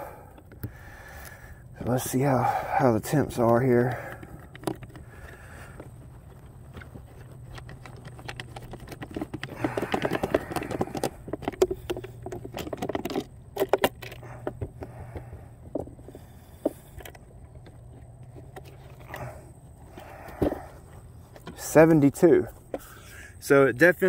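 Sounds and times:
plastic clicks and rattles: 0:03.4 - 0:05.9, 0:06.7 - 0:16.0.

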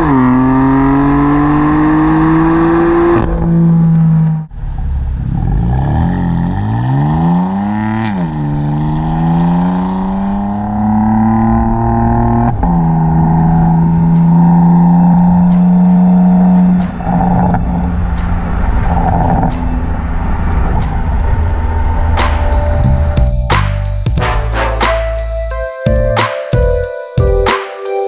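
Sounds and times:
car exhaust accelerating hard: 0:00.0 - 0:25.3
exhaust crack on upshift: 0:10.1 - 0:25.2.

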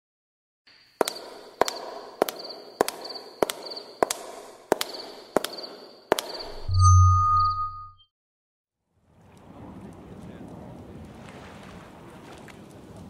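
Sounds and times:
sharp bangs: 0:01.0 - 0:06.7
faint pulsing high tone: 0:06.4 - 0:08.0.

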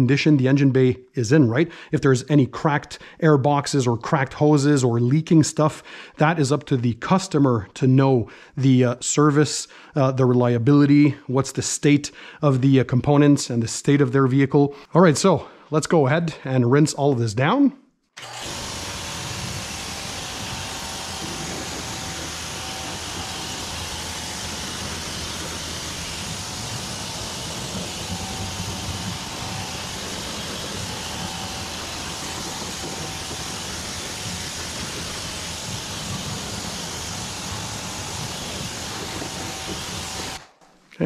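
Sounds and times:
pressure washer spray hiss: 0:18.5 - 0:40.4.

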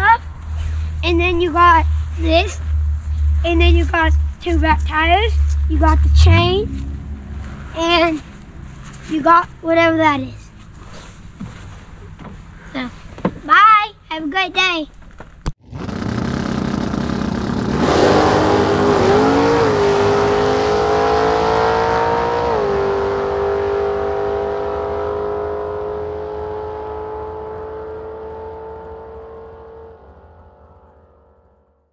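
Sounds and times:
revving engine-like tone: 0:00.0 - 0:10.4, 0:15.6 - 0:31.9
whoosh: 0:00.4 - 0:09.6.

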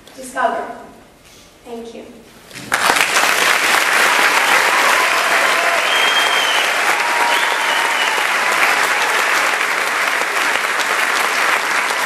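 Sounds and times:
crowd applauding: 0:02.6 - 0:12.0.

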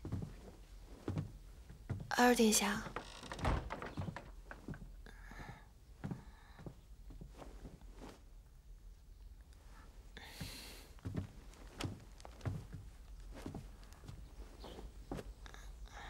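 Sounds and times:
clothing rustle: 0:00.0 - 0:05.0, 0:06.0 - 0:08.6, 0:10.9 - 0:15.8
faint footsteps: 0:00.0 - 0:08.2, 0:09.6 - 0:15.6.

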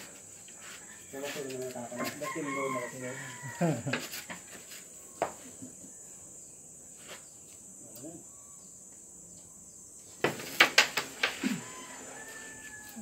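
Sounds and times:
high insect hiss: 0:00.0 - 0:13.0.

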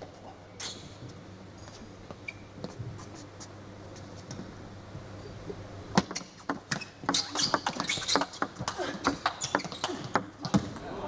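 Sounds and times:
low steady hum: 0:00.0 - 0:06.1.

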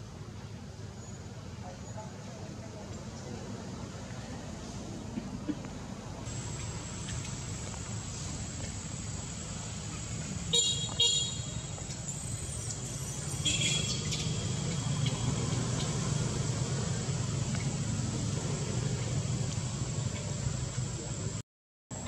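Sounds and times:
low traffic rumble: 0:00.0 - 0:22.0
vehicle horn toots: 0:10.5 - 0:11.7, 0:13.4 - 0:14.0.

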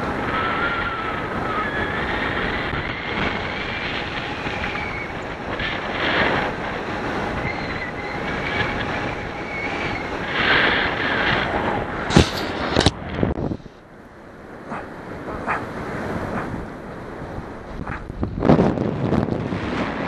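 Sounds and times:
wind buffeting microphone: 0:00.0 - 0:20.0
faint wavering whistle: 0:04.6 - 0:05.2, 0:07.4 - 0:10.1.

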